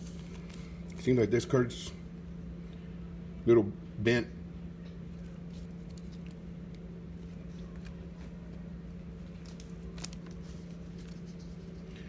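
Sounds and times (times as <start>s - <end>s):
steady low hum: 0.0s - 12.0s
trading cards rustling and clicking: 5.1s - 12.0s.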